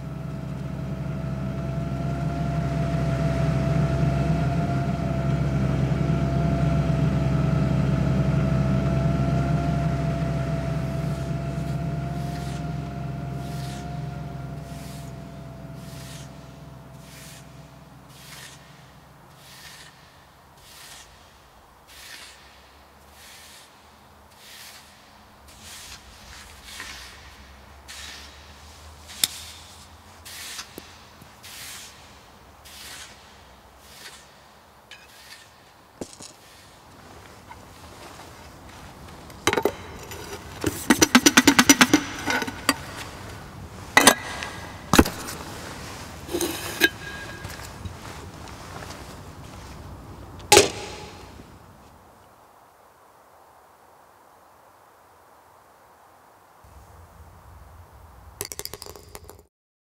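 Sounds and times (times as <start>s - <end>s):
rake scraping through sand: 10.7s - 51.4s.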